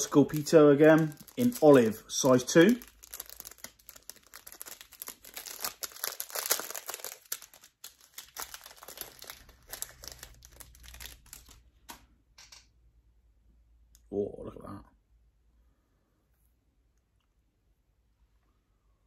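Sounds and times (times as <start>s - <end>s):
plastic packet crinkling: 0.0s - 11.7s.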